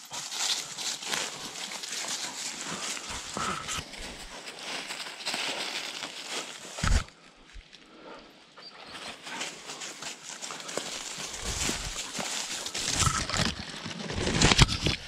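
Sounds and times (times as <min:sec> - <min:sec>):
footsteps crunching on pine needles: 0:00.0 - 0:07.8, 0:08.9 - 0:14.8.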